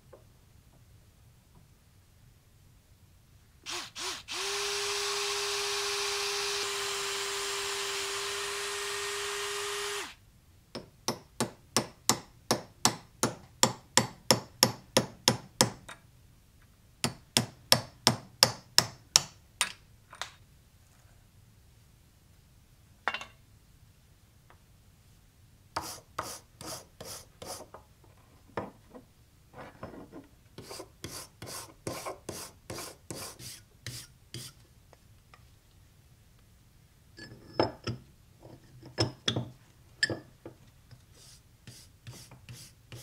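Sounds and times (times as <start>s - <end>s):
electric drill drilling wood: 3.7s - 10.2s.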